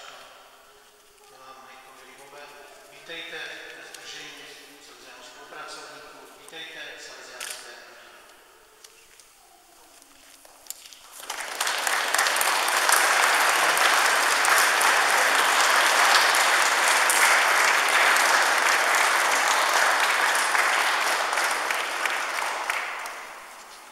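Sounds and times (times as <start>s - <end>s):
congregation applauding: 10.6s - 23.9s.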